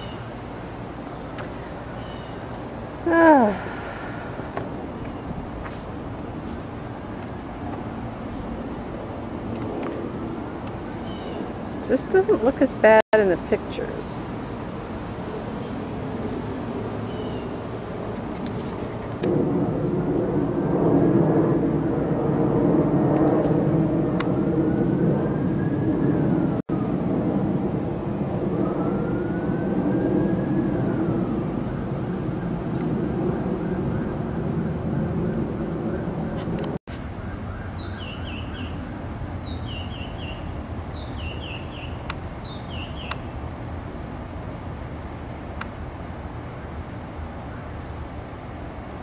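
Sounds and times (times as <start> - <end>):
songbird singing: 0.0 - 5.4, 8.1 - 8.7, 10.6 - 14.6, 15.4 - 16.0, 17.0 - 17.7, 37.0 - 43.4
loud engine drone: 2.8 - 10.8, 15.9 - 36.8
low rumble: 17.9 - 36.8.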